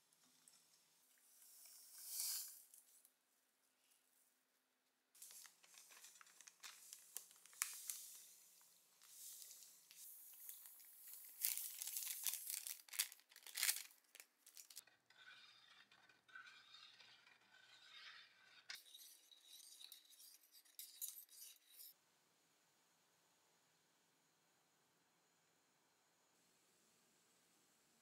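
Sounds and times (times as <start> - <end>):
plastic bag crinkling: 5.2 - 8.4, 9.0 - 14.8
wire whisk stirring water: 14.5 - 21.9.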